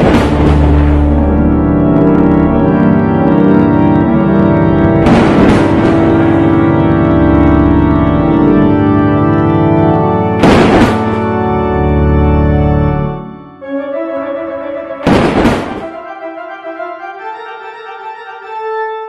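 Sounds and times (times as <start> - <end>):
crash hit: 0.0 - 1.4, 5.0 - 6.7, 10.4 - 11.4, 15.1 - 16.0
organ chords: 0.0 - 19.0.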